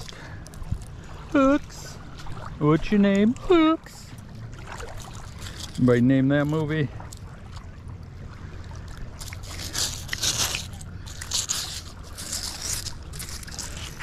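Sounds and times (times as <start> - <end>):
steady low rumble: 0.0 - 14.0
fingers scraping crust: 9.4 - 14.0.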